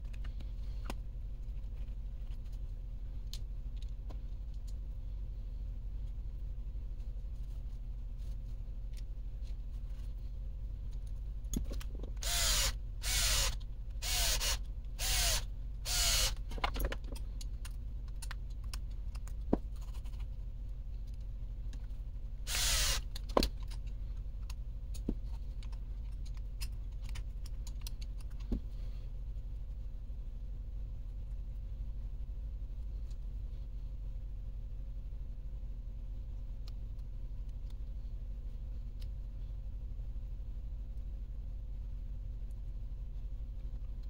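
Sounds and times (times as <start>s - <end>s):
cordless drill spinning: 12.2s - 16.4s, 22.5s - 23.1s
clicks of small parts and tools: 23.0s - 28.6s.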